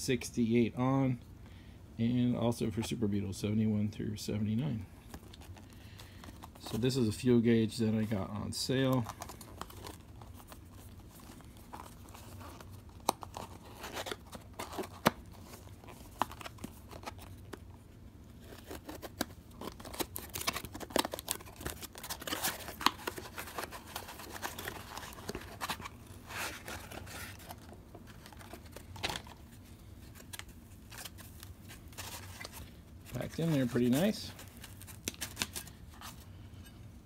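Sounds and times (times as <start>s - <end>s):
packaging crinkling and tearing: 8.7s - 36.2s.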